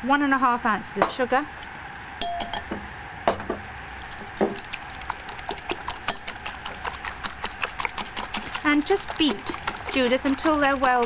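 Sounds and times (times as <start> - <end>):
whisk clicking against glass bowl: 4.0 - 11.0.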